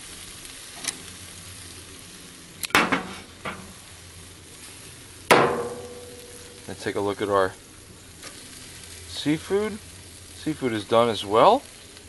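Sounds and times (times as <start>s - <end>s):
meat sizzling on grill: 0.0s - 12.0s.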